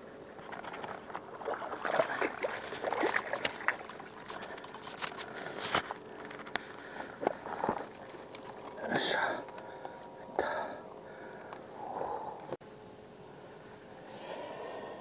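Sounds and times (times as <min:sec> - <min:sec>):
fish splashing in water: 0:00.4 - 0:05.4.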